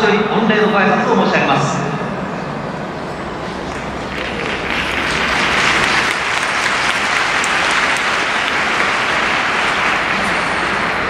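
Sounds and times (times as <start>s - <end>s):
stadium crowd applauding: 3.4s - 11.0s.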